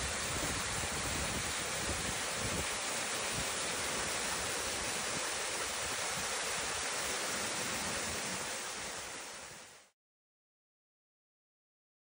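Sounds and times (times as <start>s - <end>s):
waterfall rushing over rocks: 0.0s - 10.0s.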